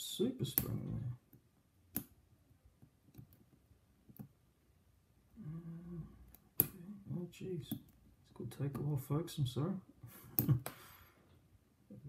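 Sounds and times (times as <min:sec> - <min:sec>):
person humming: 0:05.4 - 0:07.1.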